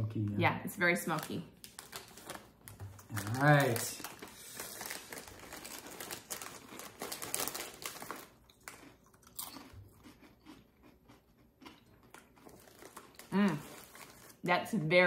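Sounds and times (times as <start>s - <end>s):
foil chip bag crinkling: 1.0s - 9.7s, 12.1s - 14.5s
potato chips crunching: 1.6s - 14.4s.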